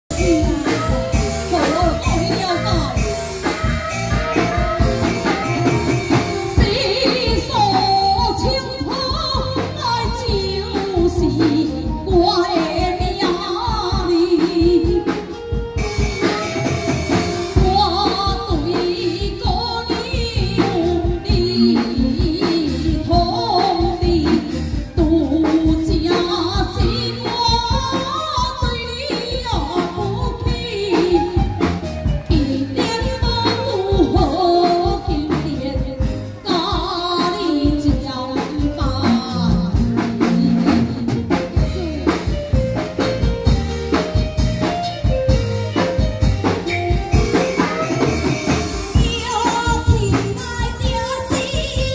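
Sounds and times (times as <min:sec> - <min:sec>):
amplified band accompaniment: 0:00.0 - 0:51.9
steady percussion beating: 0:00.1 - 0:27.9, 0:37.4 - 0:51.9
opera singing through microphone: 0:32.3 - 0:42.0.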